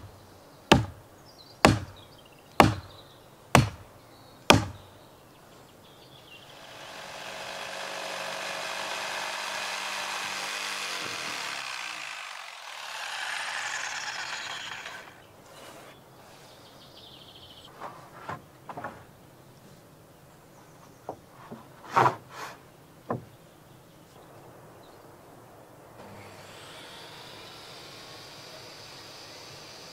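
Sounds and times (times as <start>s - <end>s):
chainsaw cutting timber: 6.4s - 15.3s, 26.0s - 29.9s
light wooden knocks: 23.0s - 23.4s.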